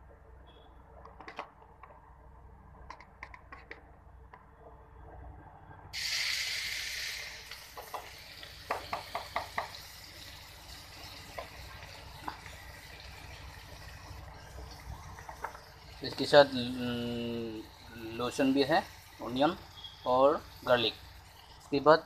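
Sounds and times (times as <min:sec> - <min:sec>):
onion sizzling in hot oil: 0:06.0 - 0:22.0.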